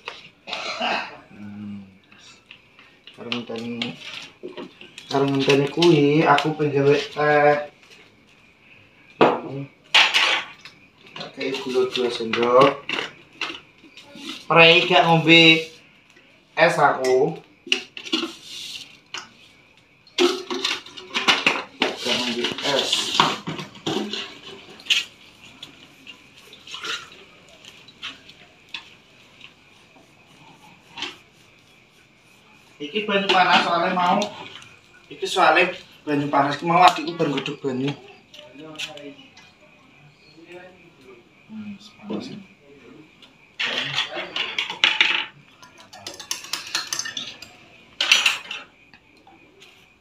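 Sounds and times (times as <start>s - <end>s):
faint steady hiss: 0.0s - 50.0s
spoon clinking against glasses: 45.6s - 48.6s.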